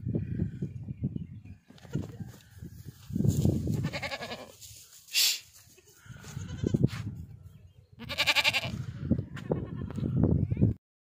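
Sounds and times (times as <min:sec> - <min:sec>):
goats bleating: 0:03.7 - 0:04.6, 0:05.8 - 0:06.8, 0:08.0 - 0:08.8
short hiss: 0:05.0 - 0:05.6.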